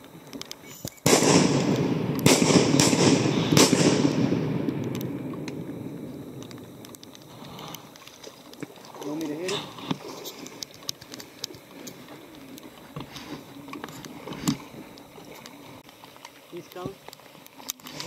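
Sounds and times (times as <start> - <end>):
shotgun shots with echo: 1.0 - 5.2.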